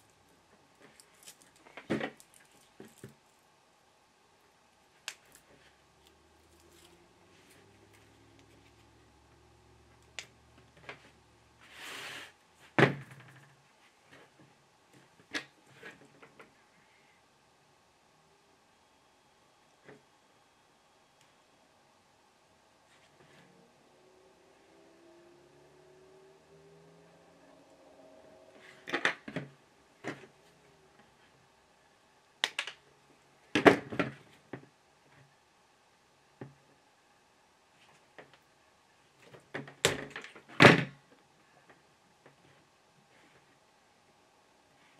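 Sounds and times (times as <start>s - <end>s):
sharp snaps: 32.4s - 32.8s.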